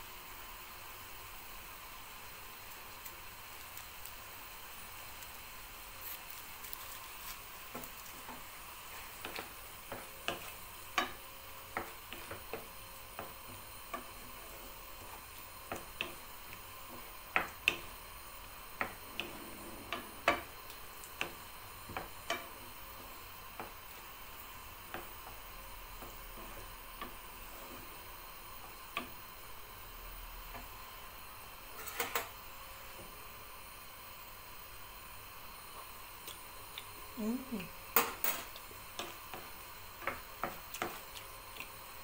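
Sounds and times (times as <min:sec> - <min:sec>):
sizzling in frying pan: 0:00.0 - 0:42.0
wooden spoon scraping pan: 0:31.7 - 0:32.3.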